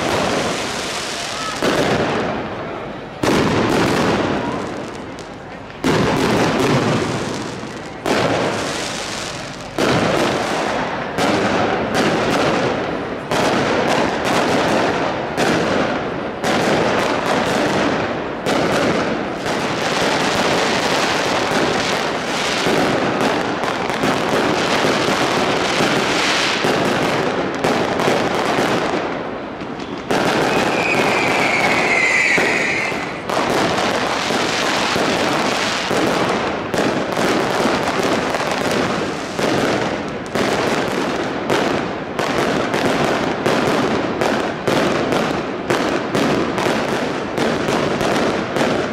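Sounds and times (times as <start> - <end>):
fireworks bangs and crackle: 0.0 - 48.9
firework whistle: 29.8 - 33.5.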